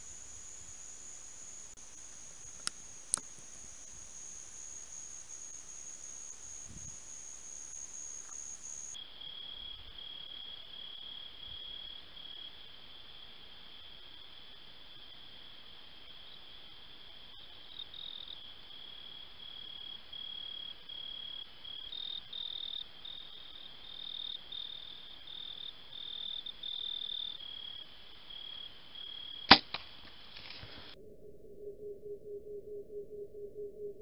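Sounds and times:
insects trilling: 0:00.0 - 0:31.0
faint click: 0:02.5 - 0:03.4
bow string crack: 0:02.5 - 0:04.0, 0:29.5 - 0:30.9.

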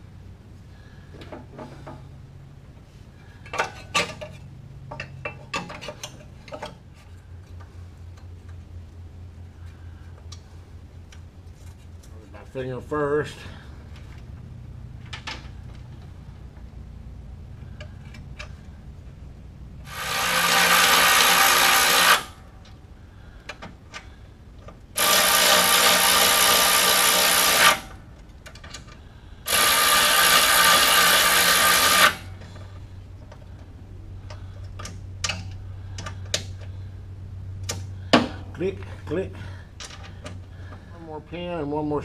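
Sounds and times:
cordless drill driving bolts: 0:19.9 - 0:22.4, 0:25.0 - 0:28.0, 0:29.5 - 0:32.4.

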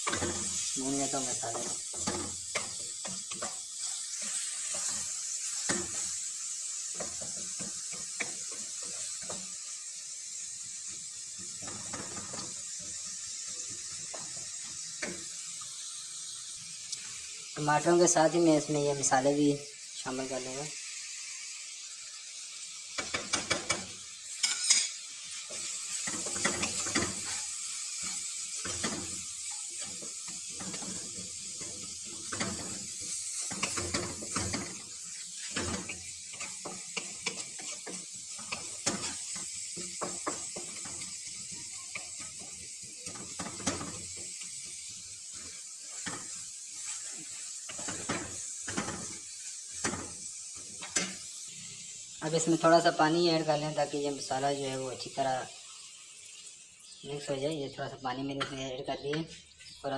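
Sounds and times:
food sizzling in oil: 0:00.0 - 0:59.9
wooden spoon scraping a pan: 0:24.3 - 0:44.2, 0:45.4 - 0:51.2.

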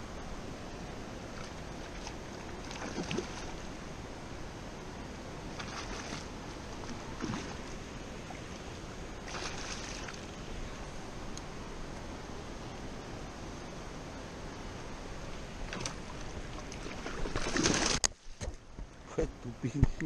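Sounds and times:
fish thrashing and splashing: 0:01.4 - 0:03.6, 0:09.2 - 0:10.3, 0:16.6 - 0:18.0.

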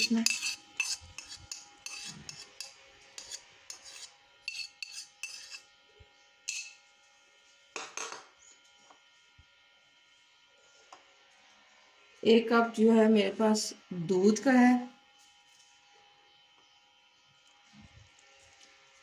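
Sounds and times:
metal spoon scraping a dish: 0:00.0 - 0:05.7, 0:06.4 - 0:06.8.

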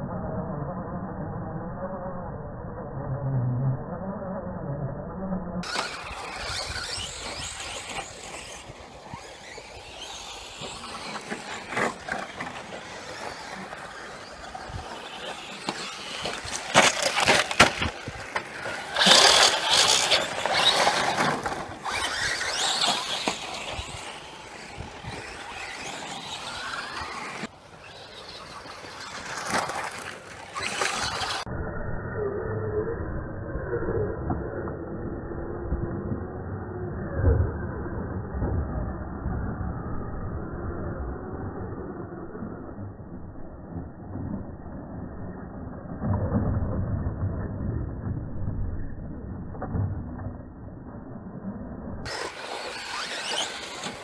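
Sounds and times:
electric motor whine: 0:05.6 - 0:31.5, 0:52.1 - 0:54.0
tyres scrabbling on gravel: 0:05.6 - 0:31.5, 0:52.1 - 0:54.0.

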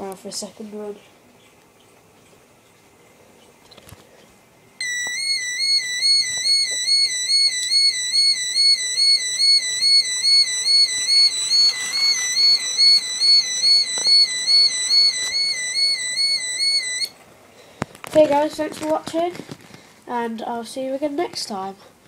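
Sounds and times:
level crossing warbling alarm: 0:04.8 - 0:17.2.

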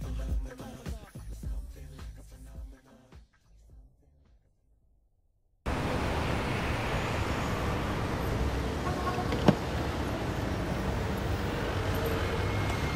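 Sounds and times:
street traffic and car engines: 0:05.7 - 0:12.9.

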